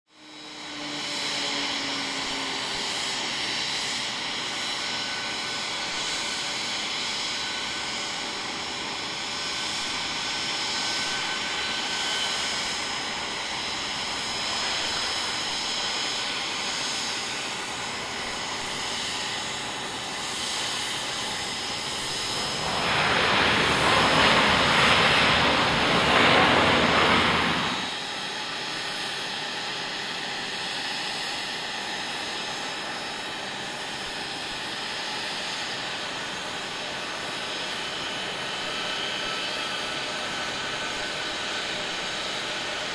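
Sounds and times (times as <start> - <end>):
broad rush of engine noise: 0.1 - 42.9
jet engines whining: 0.2 - 42.9.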